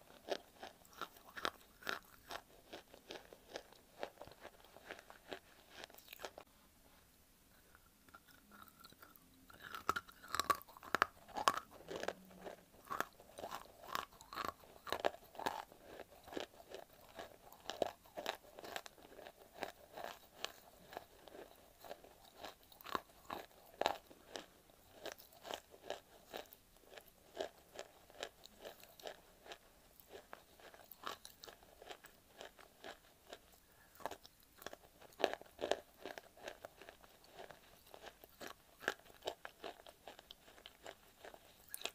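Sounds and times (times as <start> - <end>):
clay crunching between teeth: 0.0 - 6.5, 7.5 - 41.9.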